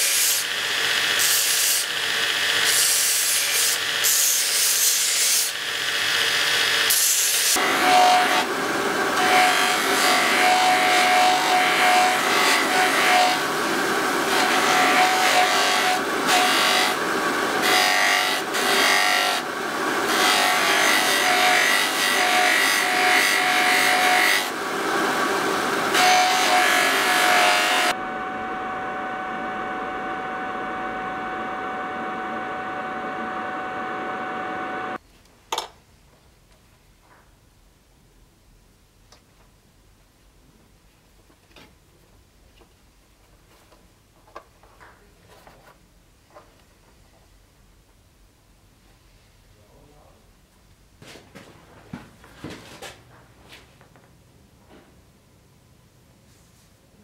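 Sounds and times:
motor whine: 27.8s - 35.0s.

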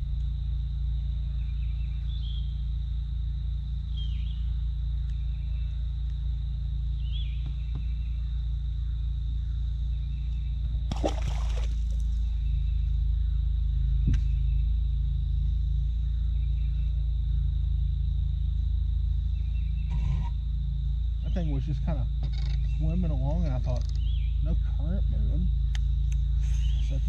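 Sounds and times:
low hum: 0.0s - 27.0s
bird chirps: 1.2s - 2.7s, 3.9s - 5.8s, 6.9s - 10.7s, 15.7s - 17.5s, 19.3s - 20.4s, 21.2s - 25.0s, 25.9s - 27.0s
fish splashing into water: 10.9s - 12.0s.

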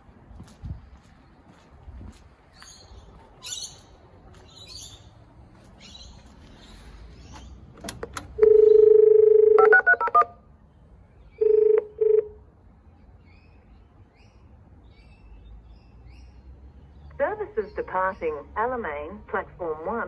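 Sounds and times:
intercom clicks: 7.9s - 10.4s
telephone dialing tones: 8.2s - 10.4s, 11.4s - 12.3s
long steady beep: 8.4s - 10.4s, 11.4s - 12.4s
short beeps: 8.4s - 10.4s.

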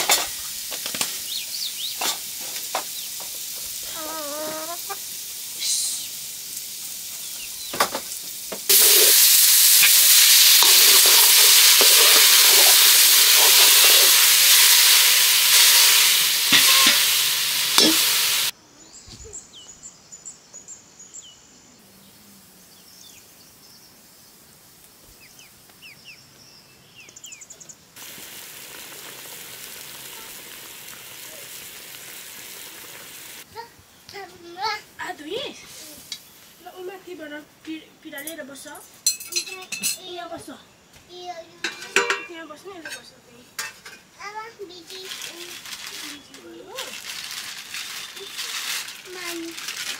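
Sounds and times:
food sizzling in hot oil: 0.0s - 18.6s, 28.0s - 33.7s, 41.6s - 43.0s, 43.6s - 49.9s.

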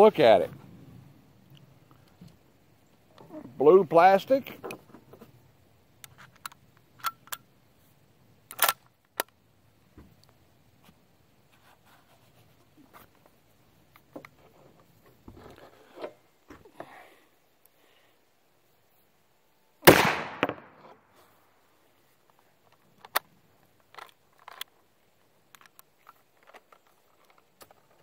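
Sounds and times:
soft rustling and bumps: 10.8s - 16.9s
rifle metal clicks and knocks: 22.7s - 24.8s, 25.4s - 28.0s.

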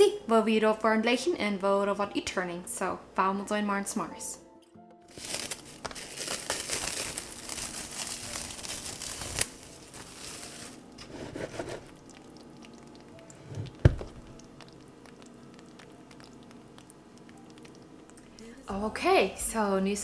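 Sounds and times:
cling wrap crinkling: 5.1s - 12.1s
dull thump: 13.8s - 14.3s.

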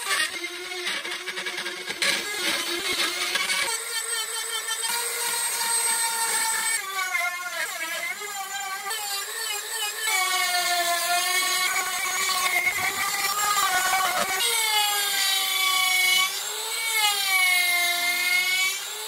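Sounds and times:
rotary tool whining cutting wood: 0.0s - 19.0s.

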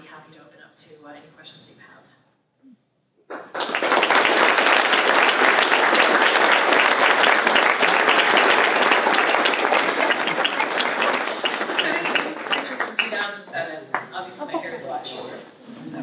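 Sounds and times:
audience applauding: 3.3s - 13.3s.

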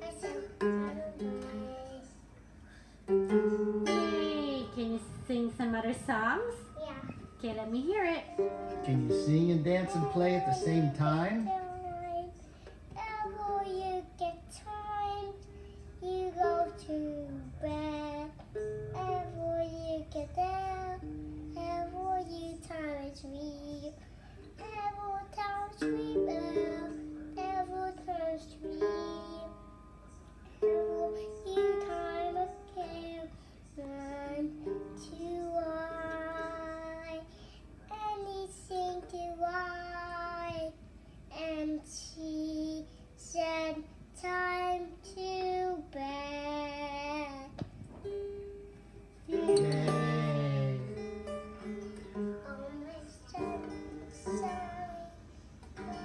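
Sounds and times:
child singing: 0.0s - 2.3s, 3.3s - 5.2s, 8.2s - 37.3s, 37.9s - 47.6s, 49.2s - 51.3s, 52.4s - 56.0s
toy guitar strumming: 3.1s - 5.1s, 7.7s - 12.0s, 24.7s - 30.0s, 30.6s - 33.2s, 48.0s - 56.0s.

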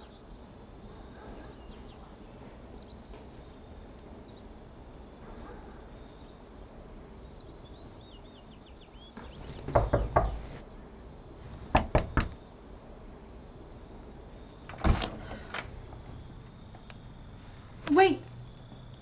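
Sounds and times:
knocking on wooden door: 9.5s - 10.5s, 11.7s - 12.4s.

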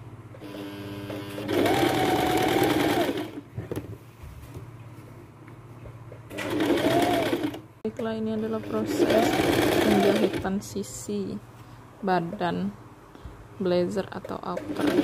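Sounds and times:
electric sewing machine stitching: 0.4s - 3.4s, 6.3s - 7.6s, 8.5s - 10.5s, 14.6s - 15.0s.

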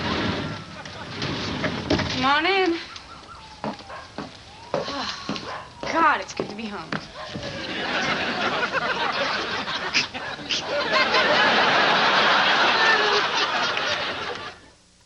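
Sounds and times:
audience laughing: 0.0s - 1.7s, 7.4s - 14.7s.

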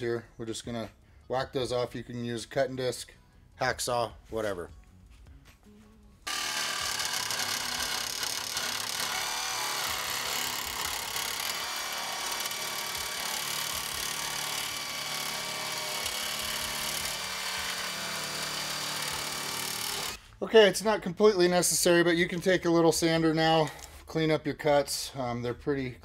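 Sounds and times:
power cutting tool running: 6.3s - 20.2s.

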